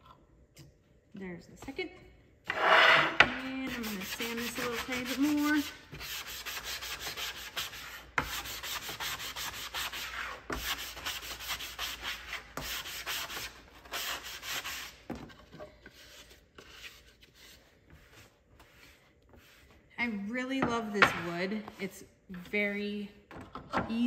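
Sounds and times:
sanding block rubbing wood: 2.5s - 15.0s.

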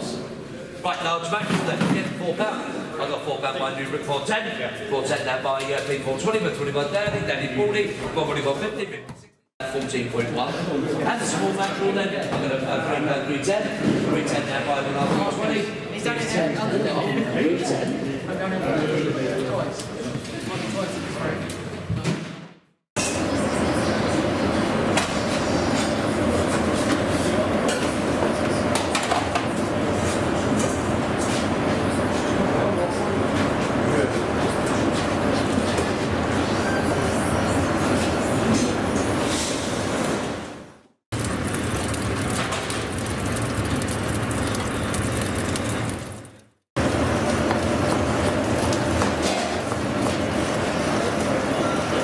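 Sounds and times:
hum of kitchen extraction: 23.0s - 52.0s.

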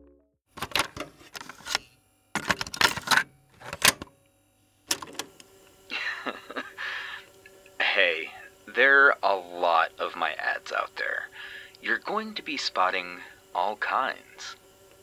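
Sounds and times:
cassette deck clicks and clunks: 0.5s - 1.8s, 2.4s - 4.2s, 4.9s - 5.5s
tape hiss: 5.2s - 15.0s.

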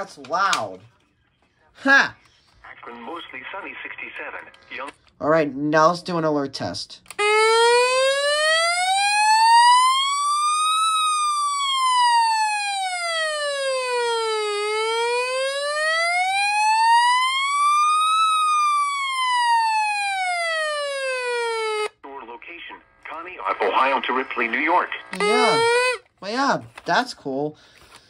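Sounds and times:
electronic siren wailing: 7.2s - 21.9s, 25.2s - 26.0s.

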